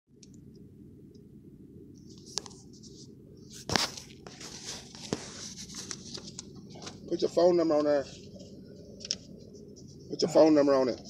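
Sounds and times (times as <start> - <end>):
low steady rumble: 0.1 - 11.0
phone rustling and scraping: 2.0 - 7.1, 7.7 - 10.4.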